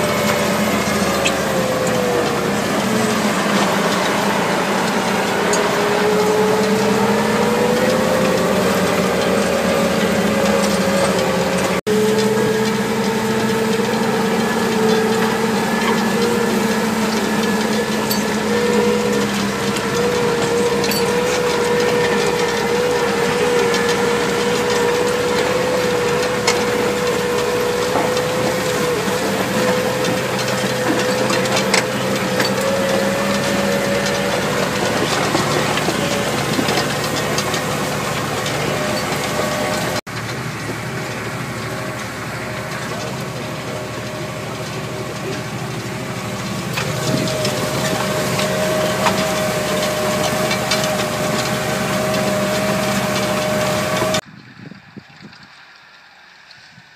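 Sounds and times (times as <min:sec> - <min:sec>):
tractor engine under load: 0:00.0 - 0:56.9.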